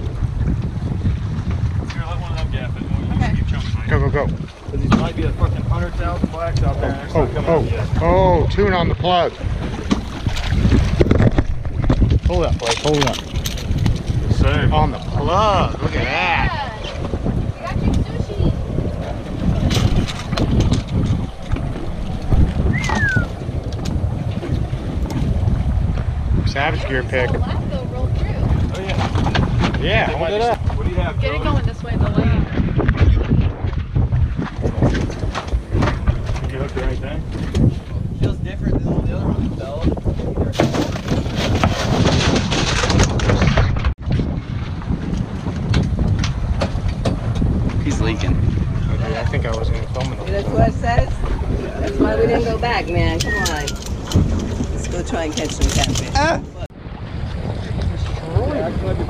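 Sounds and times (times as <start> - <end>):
boat on open water: 0.0 - 59.0
wind buffeting microphone: 0.0 - 59.0
falling whistle-like tone: 22.7 - 23.3.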